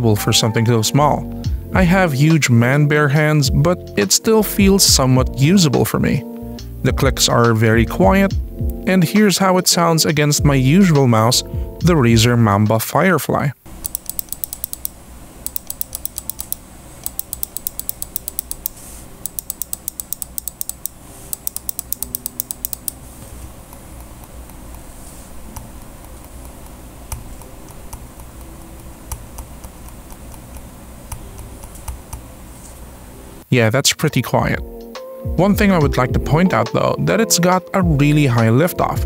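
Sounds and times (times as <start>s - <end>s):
loud crisp mouse clicks: 13.7s - 23.0s
faint mouse clicks: 13.8s - 23.0s.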